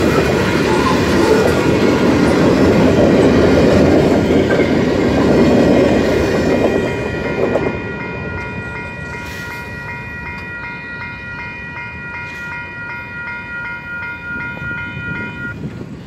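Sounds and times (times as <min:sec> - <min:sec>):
level crossing bell ringing: 0:06.9 - 0:15.6.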